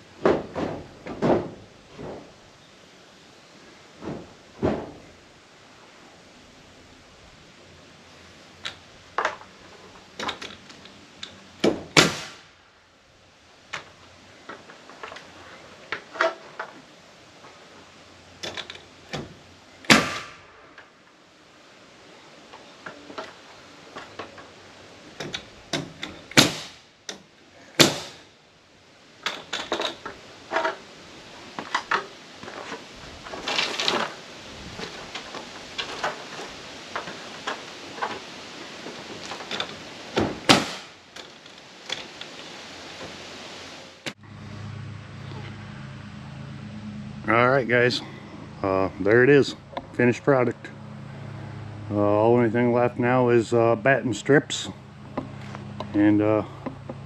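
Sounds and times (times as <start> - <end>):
handling clicks and knocks: 8.6 - 12.0, 18.4 - 19.4, 22.5 - 28.2, 29.2 - 30.9, 34.8 - 42.5
nail gun shots with hiss: 11.6 - 12.6, 19.9 - 20.6, 25.7 - 26.9, 27.8 - 28.3, 40.3 - 41.0.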